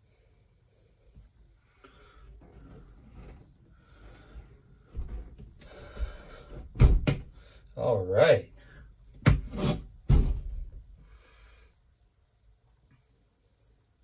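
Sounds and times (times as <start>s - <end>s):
crickets chirping: 0.0s - 14.0s
metal door swinging and thumping shut: 6.6s - 7.3s, 9.2s - 10.8s.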